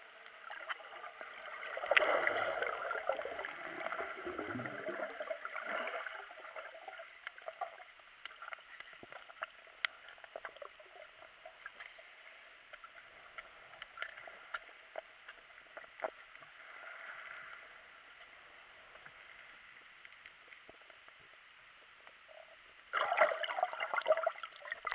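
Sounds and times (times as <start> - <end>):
underwater swish: 0.0 - 21.1
small clicks and crackles: 7.1 - 22.9.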